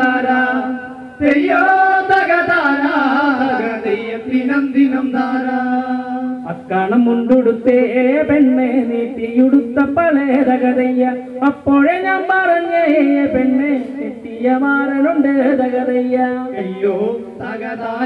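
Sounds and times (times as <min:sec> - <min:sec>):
men chanting folk song: 0:00.0 - 0:07.1.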